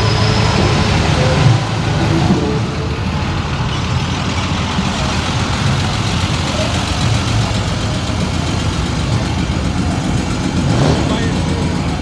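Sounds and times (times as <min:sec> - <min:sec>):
car engines passing slowly: 0:00.0 - 0:12.0.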